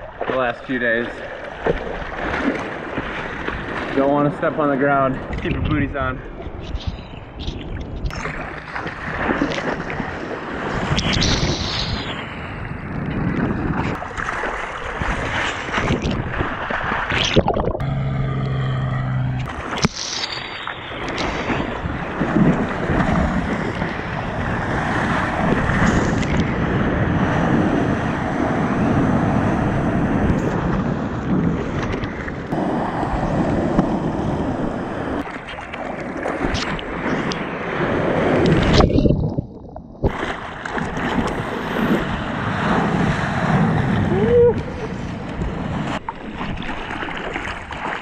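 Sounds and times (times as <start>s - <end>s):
surf rushing and splashing: 0.0s - 48.0s
wind buffeting microphone: 5.2s - 19.8s, 20.7s - 47.8s.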